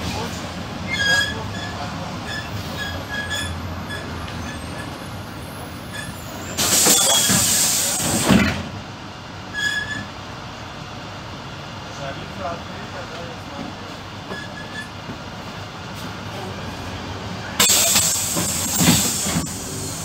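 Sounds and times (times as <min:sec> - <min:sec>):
bus diesel engine idling: 0:00.0 - 0:20.0
short high squeaks: 0:01.0 - 0:05.0, 0:05.9 - 0:07.7, 0:09.6 - 0:10.1, 0:14.3 - 0:15.0
compressed air hiss: 0:06.6 - 0:08.3, 0:17.6 - 0:20.0.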